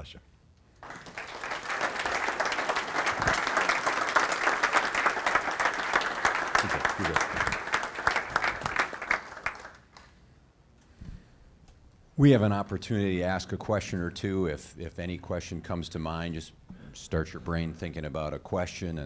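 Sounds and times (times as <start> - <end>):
audience applauding: 0.8 - 10.1.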